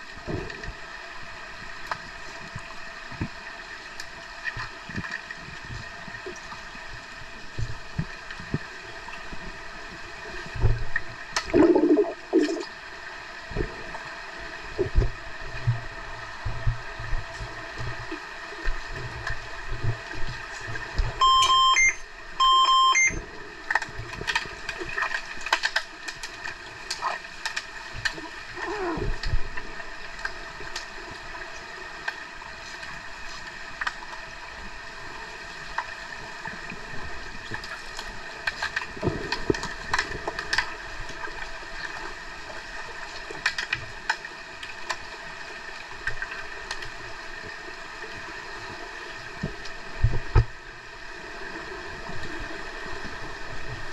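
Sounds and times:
underwater background: 0.0s - 53.9s
underwater electronic beeps: 21.2s - 23.2s.

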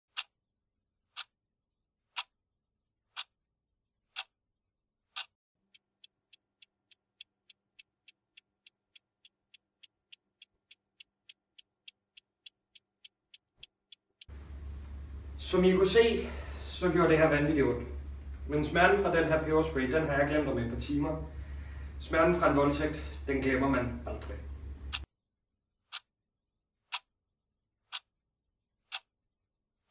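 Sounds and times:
clock ticking: 0.1s - 0.3s, 4.1s - 4.3s, 5.1s - 14.3s, 26.9s - 27.1s, 27.9s - 28.1s, 28.9s - 29.1s.

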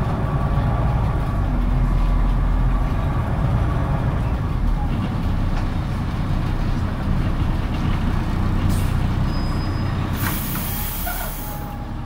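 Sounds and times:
bus engine rumbling: 0.0s - 12.0s
loud hiss of compressed air: 10.2s - 11.7s.

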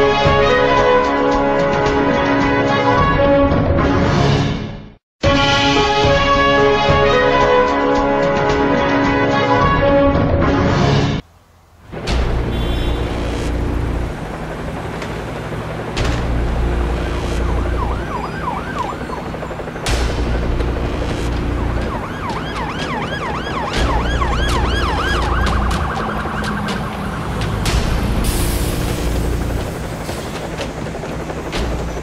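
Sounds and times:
dramatic music with deep bass: 12.0s - 18.6s, 19.3s - 32.0s
wailing emergency siren: 12.1s - 32.0s.

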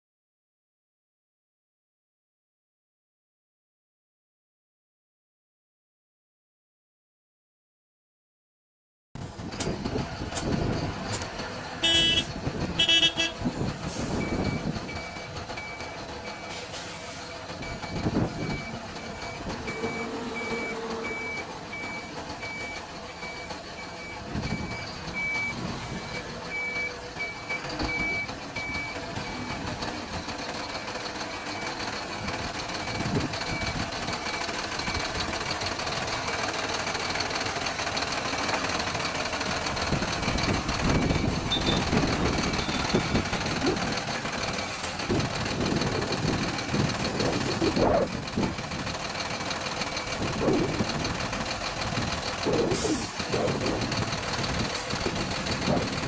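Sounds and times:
diesel engine running: 9.2s - 56.0s
truck reversing alarm beeping: 11.7s - 56.0s
short alarm tones: 41.5s - 41.9s.

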